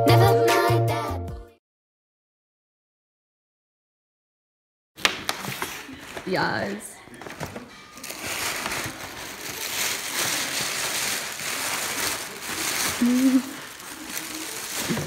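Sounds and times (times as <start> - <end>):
wrapping paper rustling: 5.0 - 15.0.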